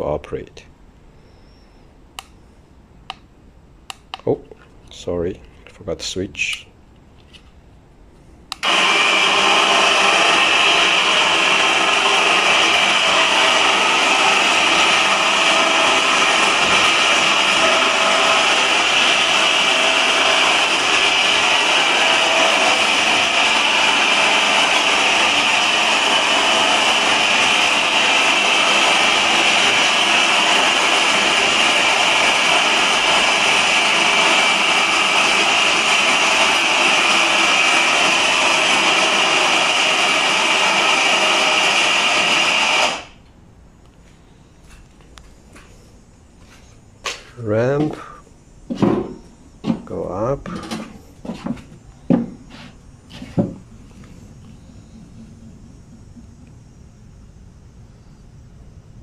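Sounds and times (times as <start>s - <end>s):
electric winch motor whine: 8.5s - 43.4s, 47.6s - 59.0s.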